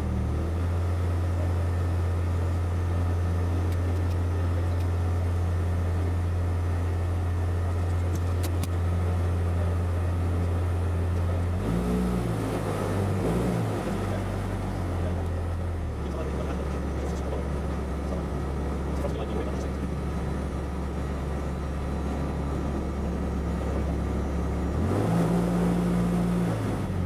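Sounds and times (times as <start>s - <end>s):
aircraft engine drone: 13.7s - 24.8s.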